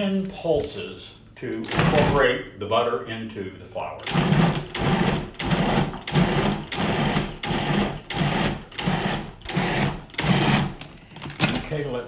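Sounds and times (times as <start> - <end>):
food processor motor whirring: 4.0 - 10.9.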